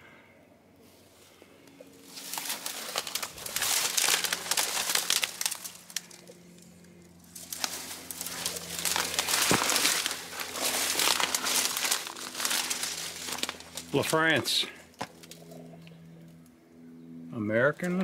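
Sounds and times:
crackly rustling and crinkling: 1.6s - 16.5s.

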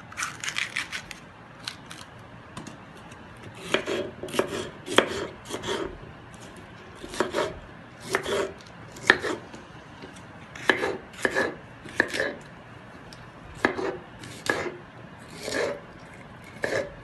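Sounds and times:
knife chopping on wooden board: 3.6s - 5.9s, 7.0s - 9.4s, 10.6s - 12.4s, 13.6s - 14.8s, 15.4s - 15.8s, 16.6s - 17.0s.

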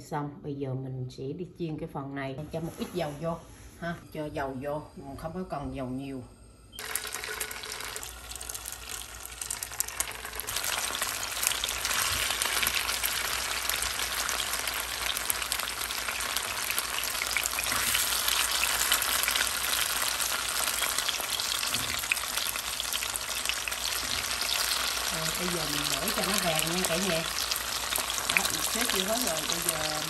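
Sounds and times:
food sizzling in a frying pan: 6.8s - 30.0s.

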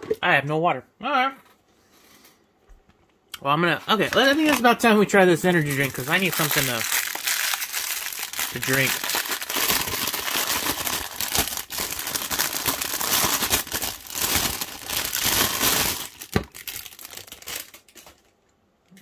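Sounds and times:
plastic wrapping crinkling: 3.8s - 18.5s.

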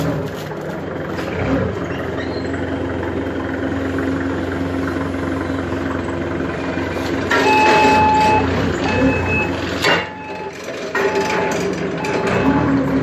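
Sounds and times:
forklift engine running: 0.0s - 13.0s
back-up alarm beeping: 7.3s - 12.7s.

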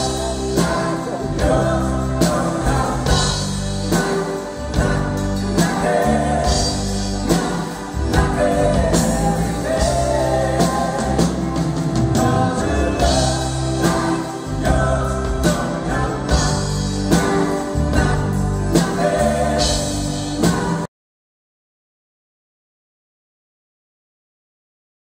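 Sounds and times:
man singing: 0.0s - 17.1s
live band playing: 0.0s - 20.9s.

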